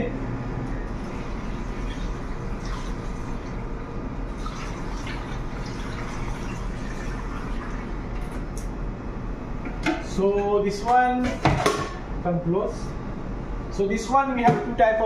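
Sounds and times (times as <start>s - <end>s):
machine humming: 0.0s - 10.8s
milk pouring from jug: 4.3s - 8.0s.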